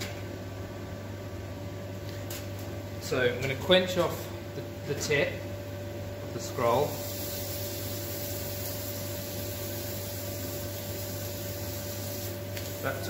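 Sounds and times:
hot metal hissing: 0:06.7 - 0:13.0.

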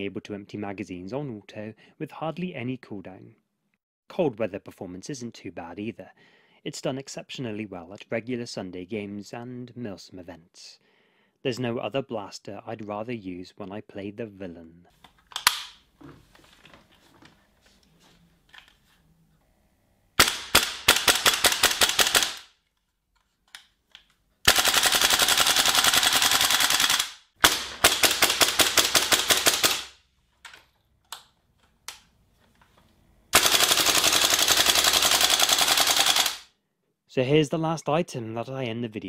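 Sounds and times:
airsoft rifle automatic fire: 0:20.2 - 0:22.5, 0:24.5 - 0:30.0, 0:33.3 - 0:36.5.

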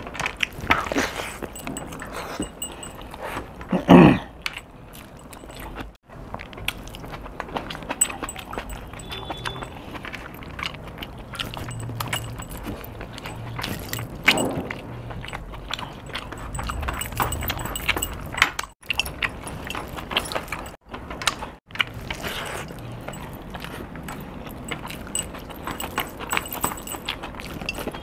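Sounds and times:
metallic jewellery clicks: 0:11.7 - 0:14.6, 0:16.0 - 0:20.8, 0:24.0 - 0:28.0.

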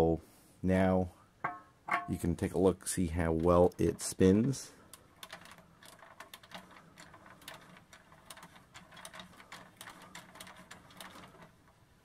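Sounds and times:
toy rotor clicking rapidly: 0:04.9 - 0:11.5.

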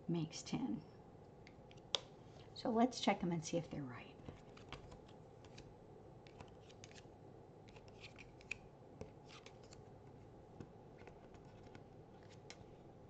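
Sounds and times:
cardboard cards clicking and scraping: 0:04.2 - 0:07.1, 0:07.7 - 0:10.2, 0:10.9 - 0:12.8.

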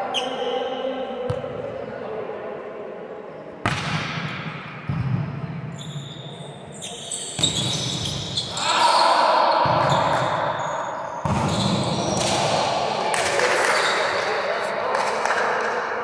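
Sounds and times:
players' voices: 0:11.3 - 0:16.0.

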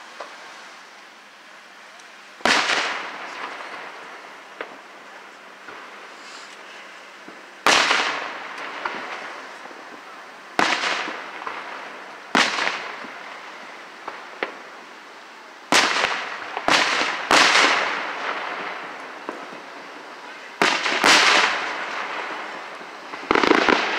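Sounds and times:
firework shells booming: 0:02.4 - 0:14.8, 0:15.7 - 0:23.9.

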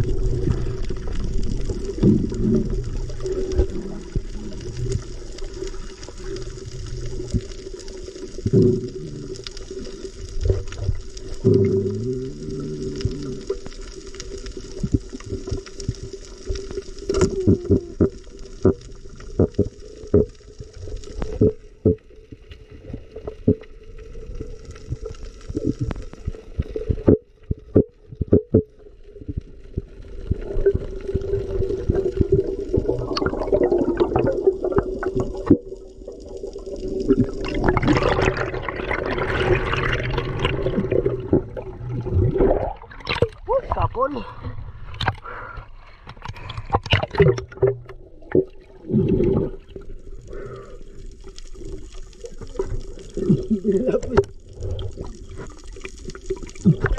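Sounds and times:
muffled underwater noise: 0:00.0 - 0:20.4, 0:34.9 - 0:45.6, 0:52.4 - 0:55.6.

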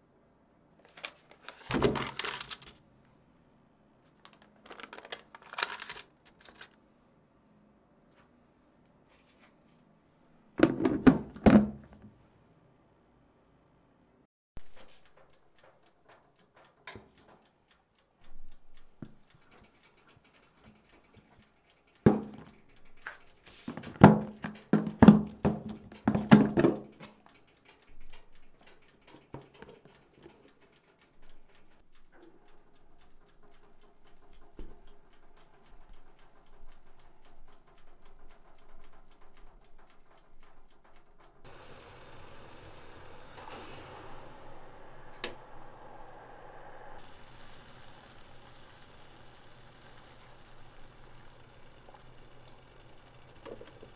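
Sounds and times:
faint steady hum: 0:41.5 - 0:53.9
pot of water hissing: 0:41.5 - 0:53.9.

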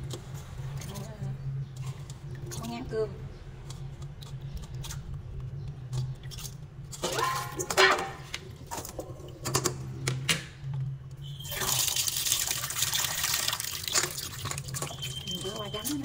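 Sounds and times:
tap water pouring into pot: 0:11.4 - 0:15.7
knocks and splashes in pot: 0:11.5 - 0:15.8.

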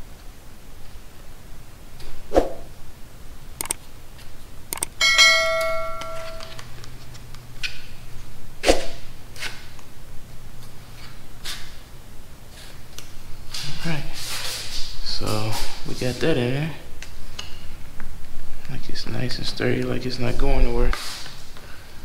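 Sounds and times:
quick button clicks: 0:03.6 - 0:03.8
bell chime: 0:05.0 - 0:06.6.

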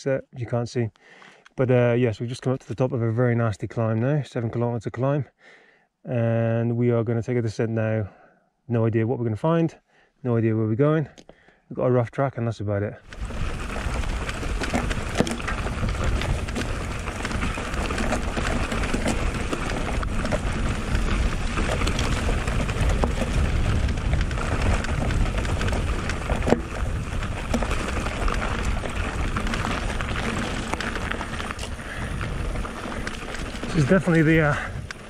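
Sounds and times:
bike tyres rattling over loose stones: 0:13.0 - 0:35.0
wind rumbling on microphone: 0:13.1 - 0:35.0.

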